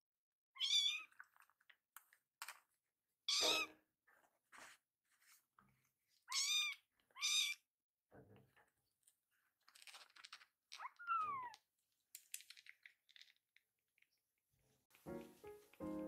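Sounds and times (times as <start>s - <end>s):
kitten meowing: 0.6s - 1.1s, 6.3s - 7.6s, 10.8s - 11.6s.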